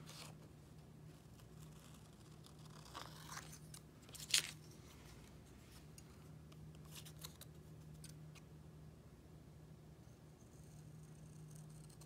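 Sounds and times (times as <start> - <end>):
faint low hum: 0.0 - 12.0
scissors cutting paper: 1.3 - 4.5.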